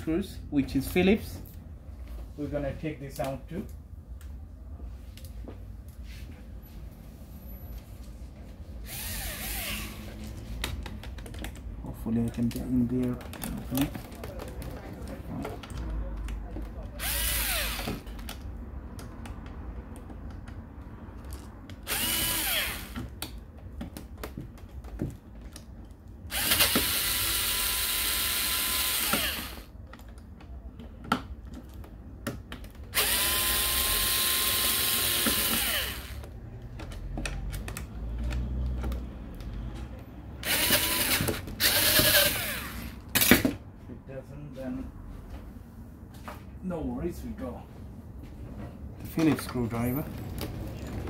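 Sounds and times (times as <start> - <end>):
cordless screwdriver whining: 8.8 - 10.0, 17.0 - 18.0, 21.9 - 23.0, 26.3 - 29.7, 33.0 - 36.2, 40.4 - 43.0.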